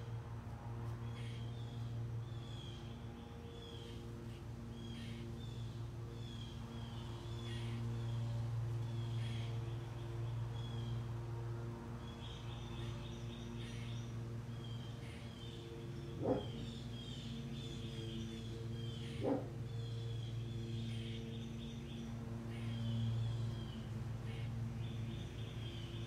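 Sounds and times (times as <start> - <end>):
steady low hum: 0.0 - 26.0
birds chirping: 11.9 - 26.0
dog barking: 16.2 - 16.6, 19.2 - 19.5.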